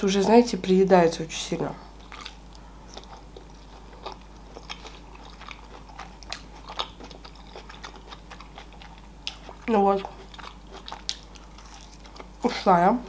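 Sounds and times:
person chewing wet mouth sounds: 2.0s - 12.5s.

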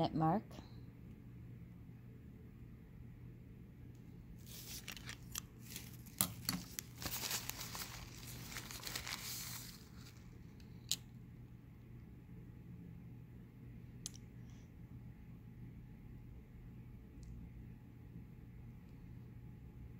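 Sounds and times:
rustling and crinkling: 4.4s - 10.6s.

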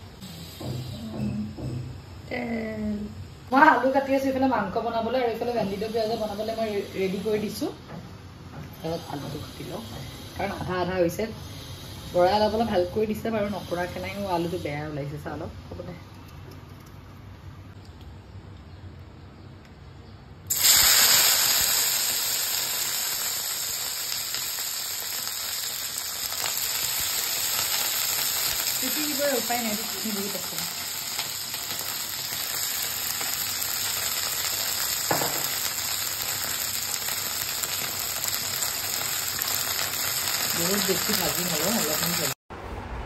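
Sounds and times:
okra sizzling in hot oil: 0.0s - 1.0s, 2.9s - 7.8s, 8.7s - 15.0s, 20.5s - 42.4s.

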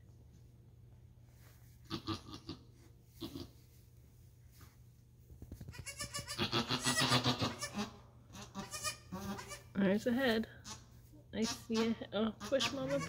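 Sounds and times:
goat bleating: 3.2s - 3.5s, 5.8s - 9.7s, 12.4s - 13.0s.

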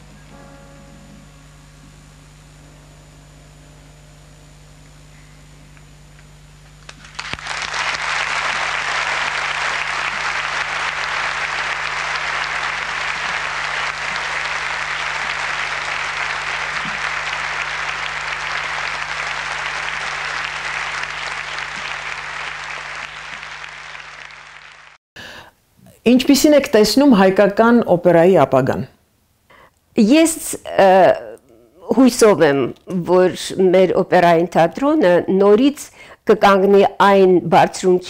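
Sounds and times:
low steady hum: 0.0s - 38.0s
audience applauding: 6.8s - 25.0s.

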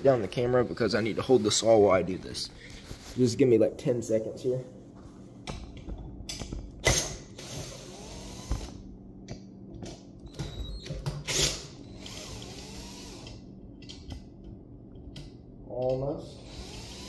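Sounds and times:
power drill running: 6.9s - 8.8s, 11.2s - 13.4s, 16.4s - 17.0s.

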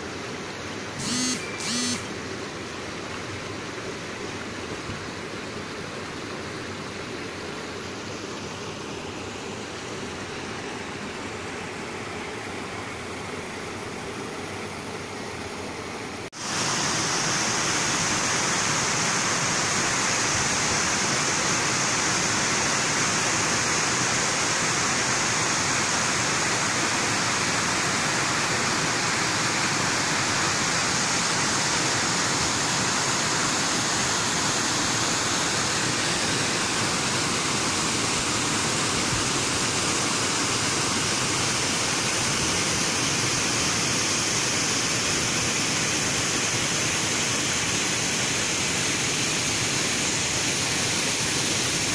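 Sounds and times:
river water over rocks: 2.2s - 51.9s
waterfall rushing: 16.4s - 51.9s.

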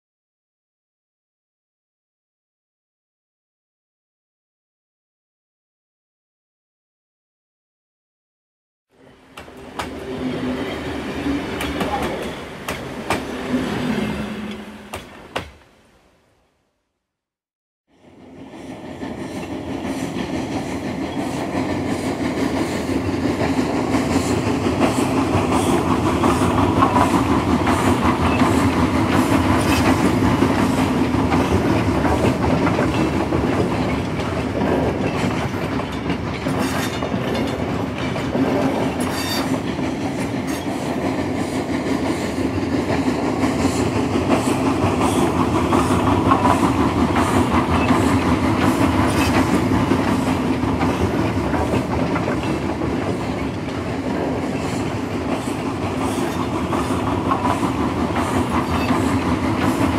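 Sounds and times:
model train rumble and wheel clatter: 9.0s - 15.7s, 18.0s - 59.9s.

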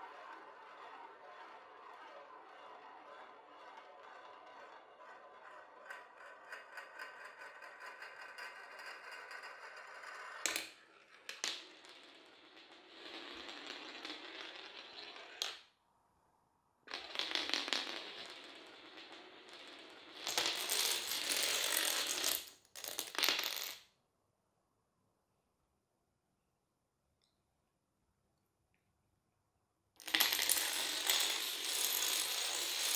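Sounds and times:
marble rolling in funnel bowl: 0.0s - 15.7s, 16.9s - 23.8s, 30.0s - 32.9s
toy dominoes toppling: 30.0s - 32.9s.

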